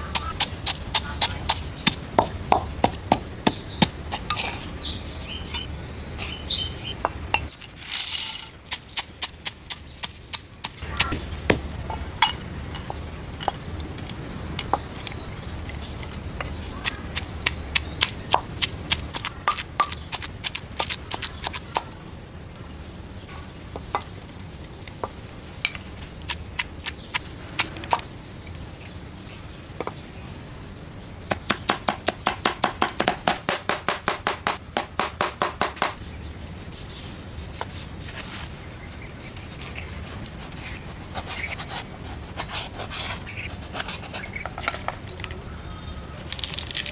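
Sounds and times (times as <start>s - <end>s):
pestle pounding in wooden mortar: 0.0s - 4.4s, 16.4s - 21.9s, 31.3s - 36.0s.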